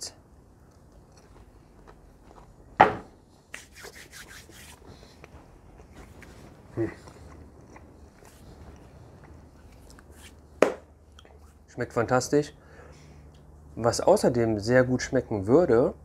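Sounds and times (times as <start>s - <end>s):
crisp crunches of chewing: 0.6s - 2.7s, 4.9s - 10.2s.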